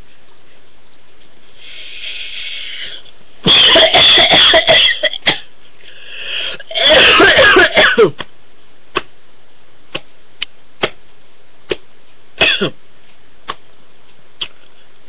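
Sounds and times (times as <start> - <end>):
man coughing hard: 3.4 - 5.5, 6.6 - 8.2, 12.4 - 12.8.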